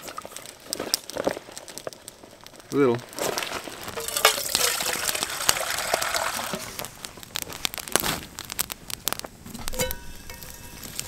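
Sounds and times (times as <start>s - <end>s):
campfire crackling and popping: 0.0s - 11.0s
water pouring into metal pot: 3.9s - 6.8s.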